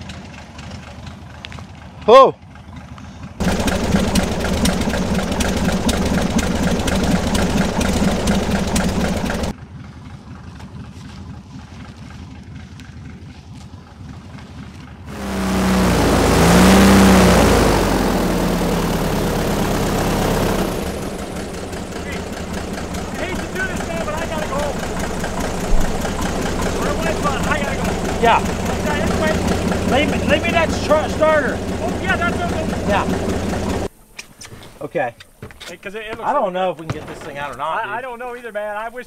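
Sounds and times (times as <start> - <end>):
airboat engine and propeller: 2.6 - 9.9, 15.1 - 33.9.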